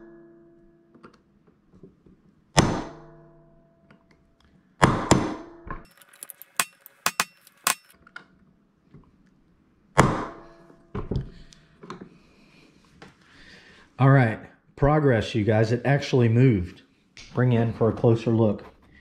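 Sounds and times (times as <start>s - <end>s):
hammer striking steel punch: 4.8s - 5.5s, 10.0s - 10.4s.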